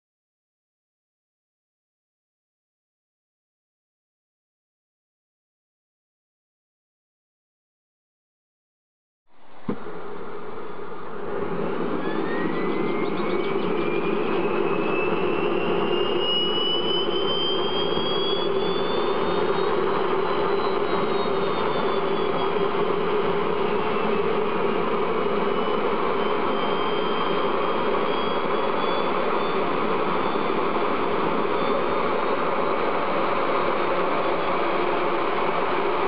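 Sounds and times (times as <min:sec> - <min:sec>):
high whine climbing in pitch: 0:09.3 - 0:36.0
higher whine sinking and climbing: 0:09.3 - 0:36.0
gas turbine roaring: 0:09.4 - 0:36.0.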